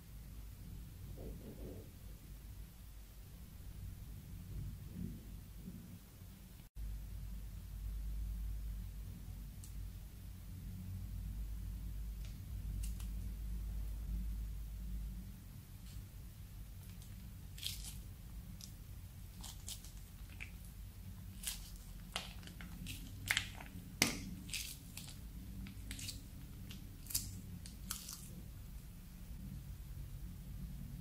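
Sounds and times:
slime crackling and popping: 0:16.8 - 0:28.6.

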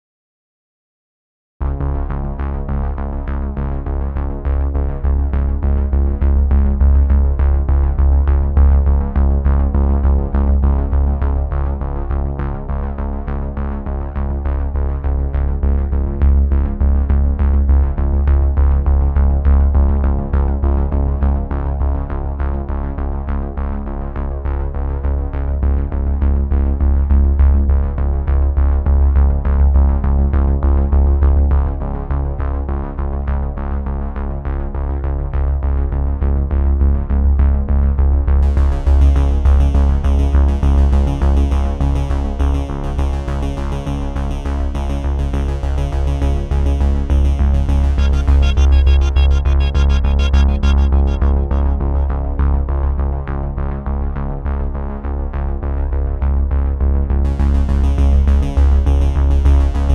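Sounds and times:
electronic music: 0:38.4 - 0:41.8, 0:44.3 - 0:53.1, 0:57.3 - 0:59.9.

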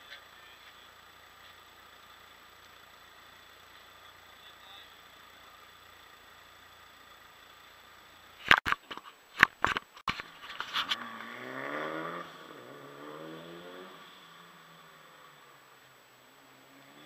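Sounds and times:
rally car engine accelerating: 0:10.8 - 0:17.0.

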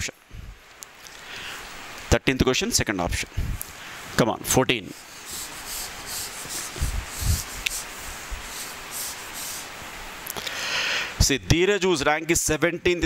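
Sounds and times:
eraser rubbing on whiteboard: 0:04.8 - 0:09.8.

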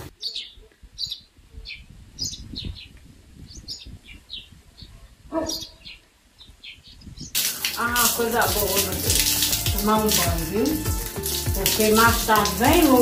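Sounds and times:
small birds chirping: 0:00.0 - 0:07.6.

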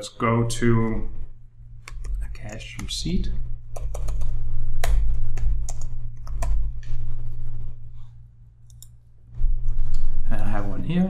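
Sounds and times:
steady low hum: 0:00.0 - 0:11.0
keyboard typing: 0:03.7 - 0:06.7, 0:08.6 - 0:09.0.

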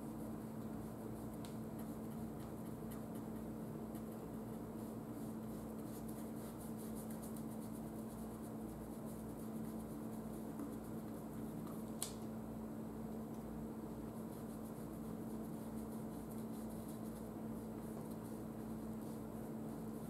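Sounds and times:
steady low hum: 0:00.0 - 0:20.0
paintbrush dabbing on canvas: 0:00.5 - 0:12.1, 0:14.0 - 0:20.0
sharp click: 0:12.0 - 0:12.2.

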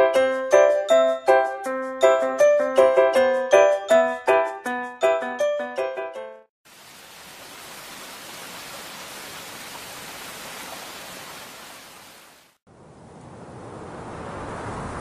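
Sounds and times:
steady rain hiss: 0:06.7 - 0:12.6
dull rushing noise: 0:12.7 - 0:15.0.

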